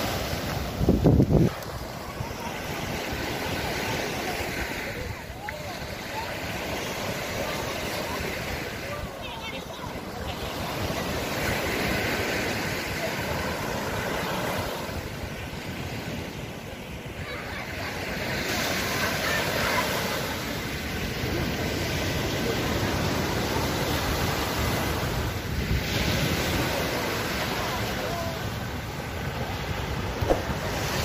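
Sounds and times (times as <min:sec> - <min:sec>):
wind rumbling on microphone: 0:00.0 - 0:17.2, 0:20.0 - 0:31.0
waves breaking on beach: 0:00.0 - 0:31.0.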